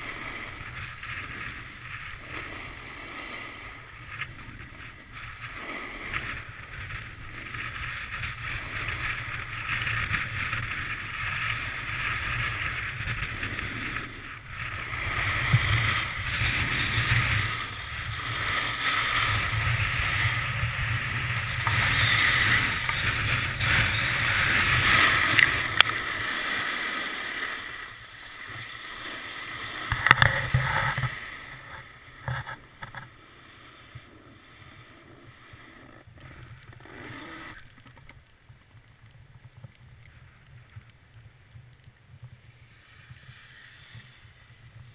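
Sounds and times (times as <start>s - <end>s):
wind noise on microphone: 0.0s - 26.1s
snowboard hissing on snow: 0.0s - 29.9s, 42.6s - 44.6s.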